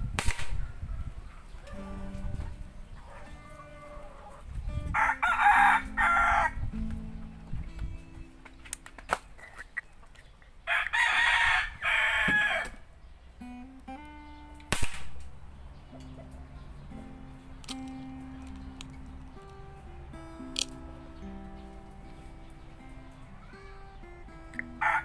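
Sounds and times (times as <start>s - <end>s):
air gun shot: 0.2s - 0.6s, 14.7s - 15.3s
rooster crowing: 0.6s - 6.7s, 10.7s - 12.8s, 24.8s - 25.0s.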